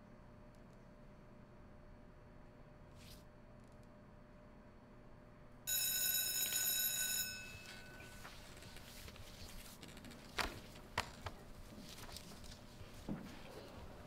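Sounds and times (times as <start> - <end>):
school bell ringing: 5.7 - 8.4.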